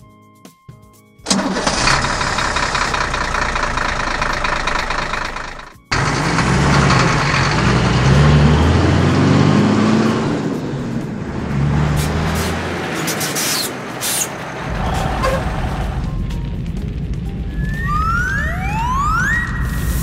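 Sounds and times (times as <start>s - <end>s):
truck engine cranking: 1.3s - 16.1s
engine running with uneven rumble: 1.3s - 17.7s.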